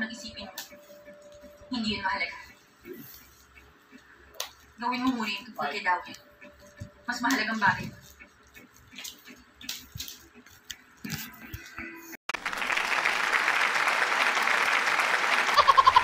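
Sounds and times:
recorded applause: 12.3s - 16.0s.

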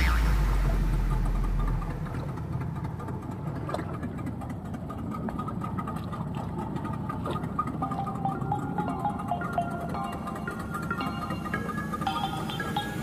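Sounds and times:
loud deep boom: 0.0s - 2.9s
boat engine idling: 0.0s - 13.0s.

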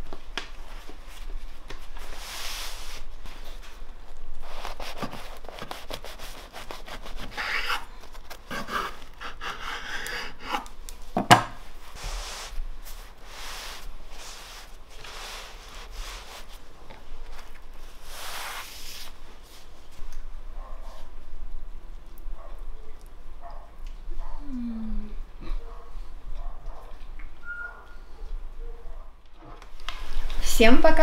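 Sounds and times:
knife sawing through bread: 4.4s - 10.7s.

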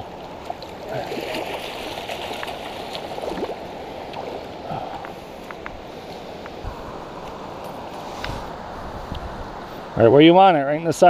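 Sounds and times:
stream water gurgling: 0.0s - 10.3s
fish splashing in net: 0.9s - 3.6s.

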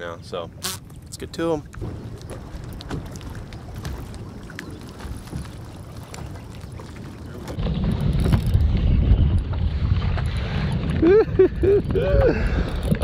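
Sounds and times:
water lapping around a boat: 0.0s - 8.5s
wind: 0.0s - 13.0s
wind rumbling on microphone: 0.0s - 13.0s.

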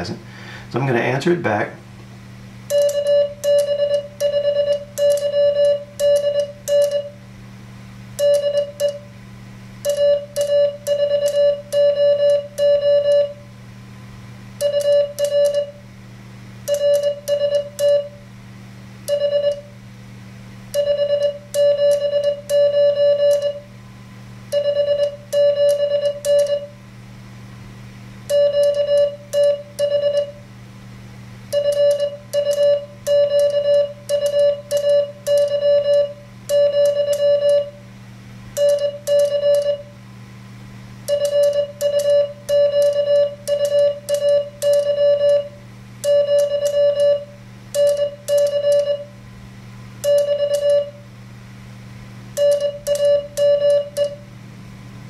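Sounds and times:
morse code beeps: 2.7s - 7.2s, 8.2s - 9.1s, 9.8s - 13.4s, 14.6s - 15.8s, 16.7s - 18.2s, 19.1s - 19.7s, 20.8s - 23.7s, 24.5s - 26.7s, 28.3s - 30.4s, 31.5s - 37.8s, 38.6s - 39.9s, 41.1s - 49.1s, 50.0s - 51.0s, 52.4s - 54.2s.

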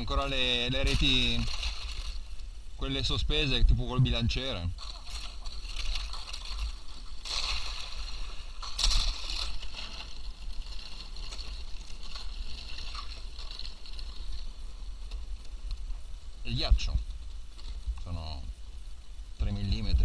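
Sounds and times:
kayak scraping through thin ice: 0.0s - 2.4s, 4.6s - 16.0s.

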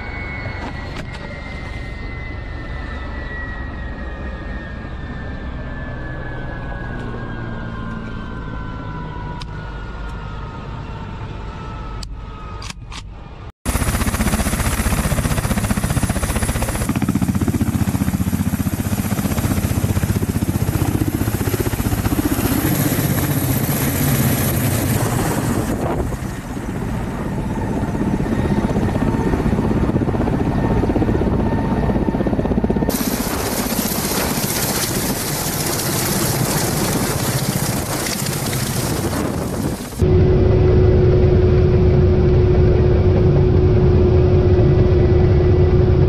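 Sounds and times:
helicopter engines: 0.0s - 46.0s
helicopter rotors beating: 13.2s - 46.0s.

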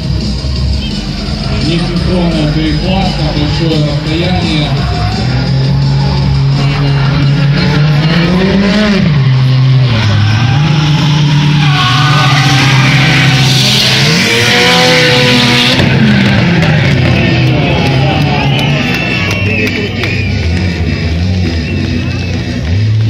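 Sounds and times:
car engines revving: 0.0s - 23.0s
tyres screeching: 0.7s - 16.3s.

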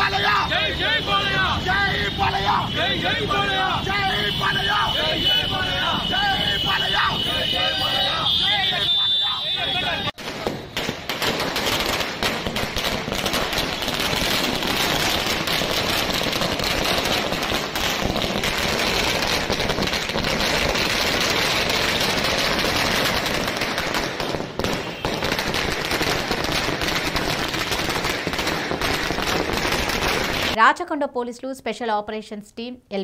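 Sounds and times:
firecrackers bursting: 10.0s - 30.6s.

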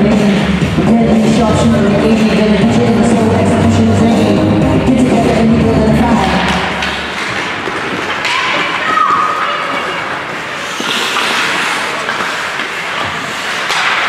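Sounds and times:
arena music: 0.0s - 7.6s
skates scraping on ice: 6.3s - 14.0s
hockey stick and puck knocks: 10.8s - 14.0s.

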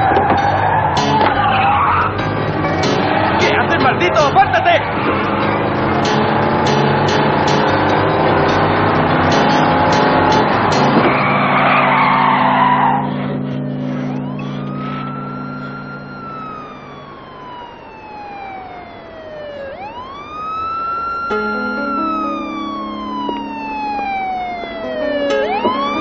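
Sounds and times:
police siren wailing: 0.0s - 26.0s
steady low drone: 13.2s - 20.2s, 21.3s - 26.0s.

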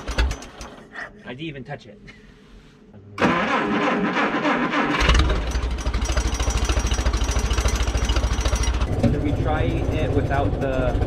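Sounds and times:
engine cranking on starter: 0.0s - 0.8s, 3.2s - 10.7s
engine running with low pulse: 5.0s - 11.0s.

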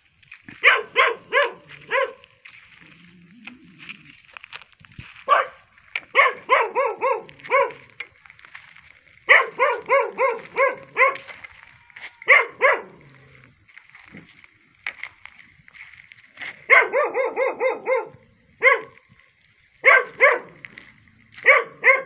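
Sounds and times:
dog barking: 0.5s - 2.3s, 5.3s - 8.0s, 9.3s - 11.4s, 12.0s - 13.2s, 16.6s - 19.0s, 19.8s - 20.6s, 21.4s - 22.0s.

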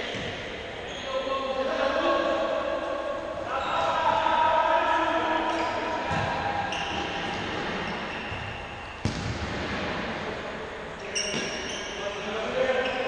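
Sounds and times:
players calling: 0.0s - 13.0s
ball kicked with echoing thuds: 6.1s - 6.5s, 8.3s - 10.1s.

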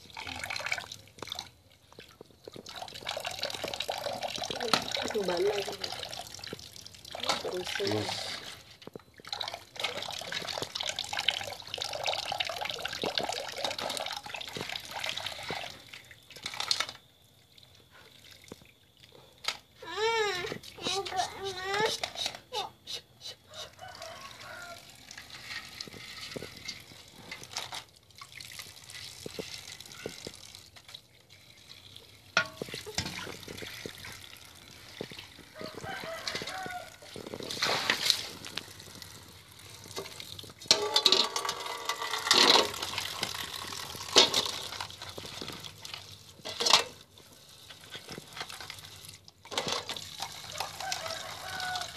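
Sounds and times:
water trickling and splashing: 0.0s - 22.8s, 23.5s - 51.9s
shells clattering against metal pot: 40.0s - 45.0s, 46.4s - 47.0s.

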